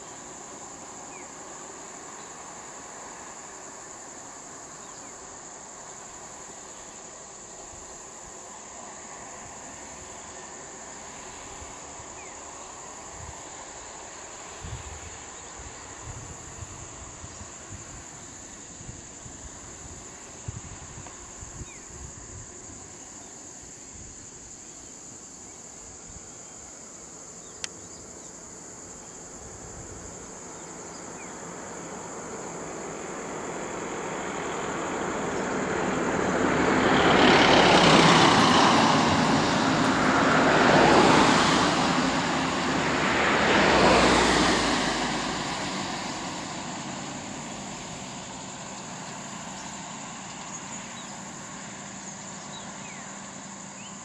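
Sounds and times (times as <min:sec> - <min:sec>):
vehicles driving past: 0:30.1 - 0:54.0.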